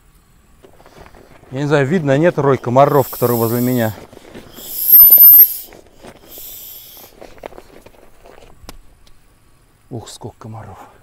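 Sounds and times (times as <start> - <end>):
faint rustling: 0.6 - 9.4
aerosol spray can hissing: 2.9 - 7.1.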